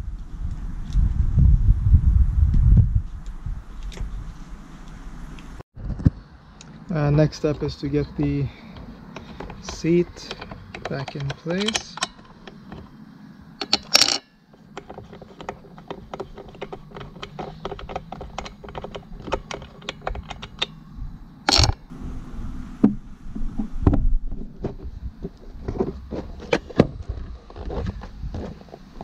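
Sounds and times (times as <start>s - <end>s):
clicks and knocks of parts handled: 7.5s - 12.9s, 13.6s - 20.8s, 21.5s - 21.8s.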